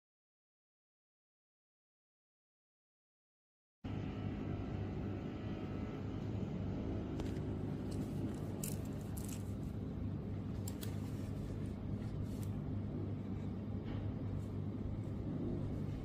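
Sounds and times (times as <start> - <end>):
low hum: 3.9 - 16.0
mouse scraping rustles: 7.8 - 13.6.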